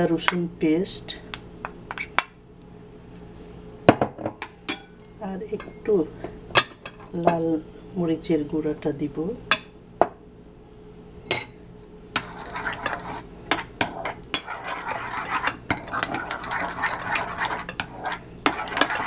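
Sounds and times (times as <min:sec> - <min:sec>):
spoon scraping paste in bowl: 0:12.2 - 0:19.0.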